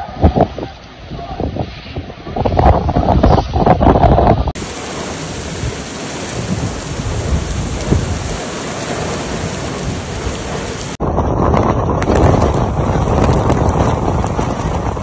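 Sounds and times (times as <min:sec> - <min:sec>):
wind rushing: 0:00.2 - 0:15.0
heavy rain pouring: 0:04.5 - 0:15.0.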